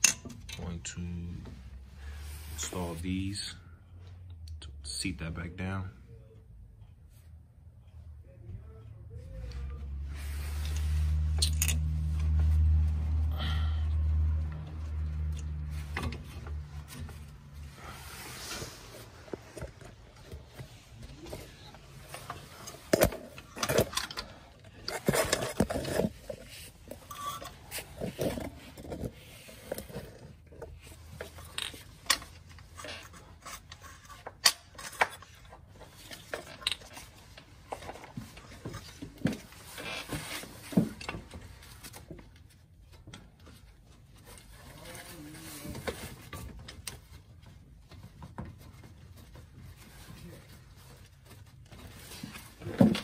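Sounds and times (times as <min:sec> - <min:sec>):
metal tools clinking and knocking: 0:00.0 - 0:00.8, 0:11.4 - 0:11.9.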